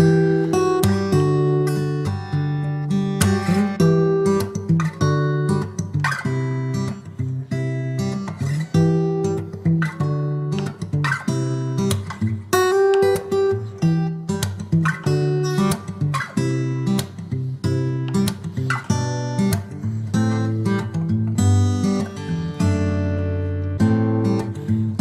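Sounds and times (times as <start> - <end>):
acoustic guitar strumming: 0.0 - 25.0.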